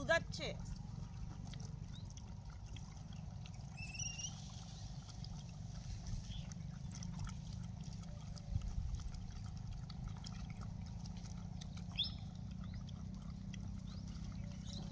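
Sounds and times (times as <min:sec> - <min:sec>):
animals lapping milk: 0:00.0 - 0:14.9
low wind rumble: 0:04.8 - 0:14.9.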